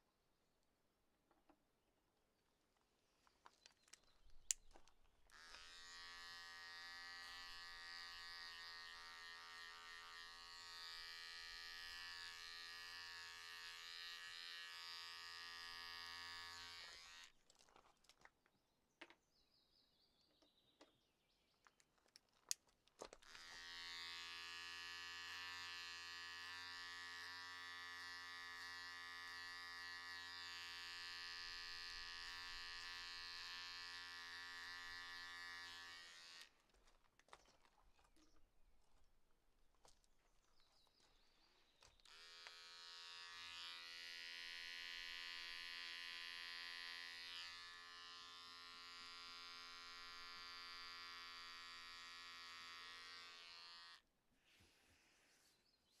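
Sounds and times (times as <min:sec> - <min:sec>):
electric hair clippers buzzing: 0:05.3 - 0:17.4, 0:23.2 - 0:36.6, 0:42.0 - 0:54.1.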